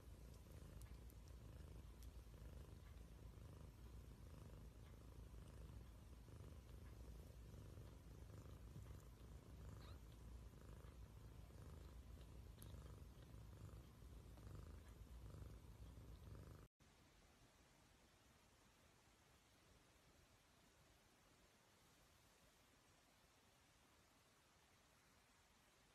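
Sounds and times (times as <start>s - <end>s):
cat purring: 0.0s - 16.8s.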